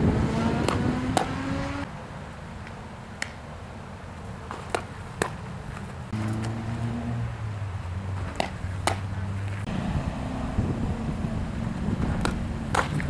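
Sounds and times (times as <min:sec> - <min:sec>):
vehicle engine accelerating: 0:00.0 - 0:01.9, 0:06.1 - 0:13.0
sharp snaps: 0:02.6 - 0:03.4, 0:08.4 - 0:09.1.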